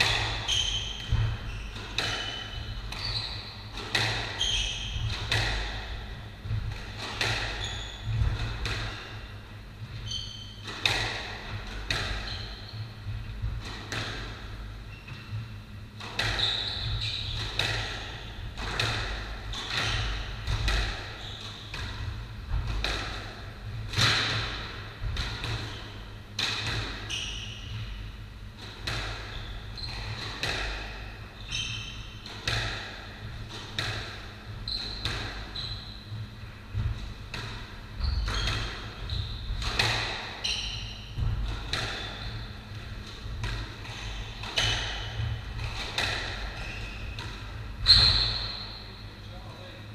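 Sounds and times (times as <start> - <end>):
shoes squeaking on wooden floor: 0.0 - 5.1, 6.6 - 8.4, 9.9 - 10.6, 16.3 - 17.4, 21.1 - 21.8, 34.6 - 37.0, 37.9 - 39.8, 43.8 - 49.0
squash ball smacking rackets and walls: 0.0 - 49.1.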